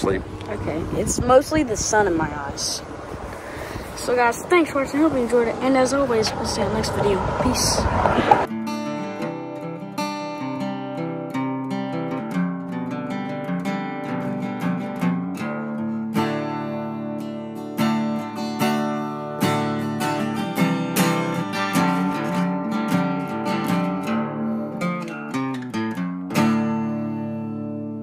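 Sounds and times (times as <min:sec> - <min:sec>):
acoustic guitar music: 0:00.0 - 0:28.0.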